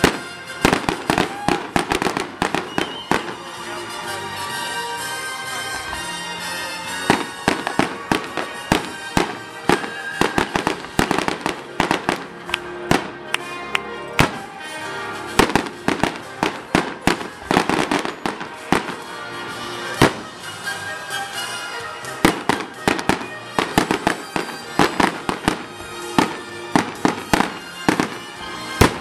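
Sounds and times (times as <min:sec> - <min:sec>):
fireworks bursting: 0:00.0 - 0:03.6, 0:06.8 - 0:13.5, 0:14.2 - 0:21.4, 0:22.0 - 0:29.0
music playing: 0:00.0 - 0:29.0.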